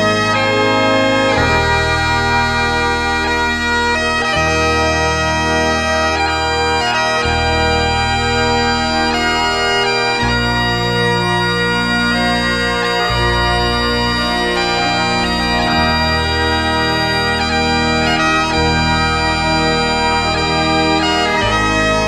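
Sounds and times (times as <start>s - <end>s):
slow bagpipe melody: 0.0s - 22.0s.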